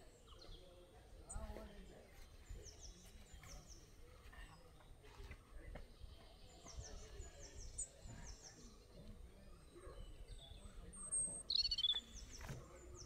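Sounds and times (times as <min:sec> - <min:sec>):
birds chirping: 0:00.0 - 0:13.0
sharp loud bird chirp: 0:11.1 - 0:12.3.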